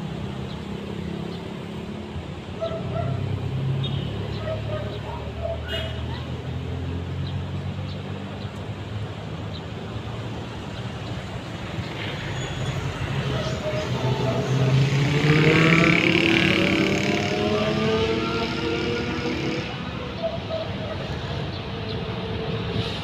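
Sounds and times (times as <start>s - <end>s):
road traffic hum: 0.0s - 23.0s
diesel locomotive engine approaching: 9.8s - 23.0s.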